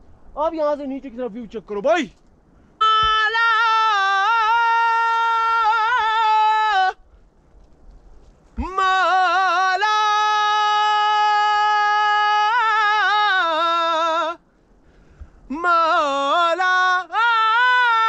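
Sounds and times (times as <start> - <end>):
man singing unaccompanied: 2.8 - 7.0, 8.6 - 14.4, 15.5 - 18.0.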